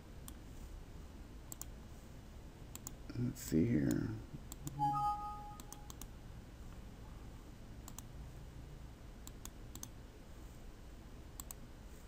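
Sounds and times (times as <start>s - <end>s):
faint background hum: 0.0s - 12.0s
computer mouse clicks: 1.5s - 1.8s, 2.7s - 3.0s, 3.8s - 4.8s, 5.6s - 6.1s, 7.8s - 8.1s, 9.2s - 10.0s, 11.4s - 11.6s.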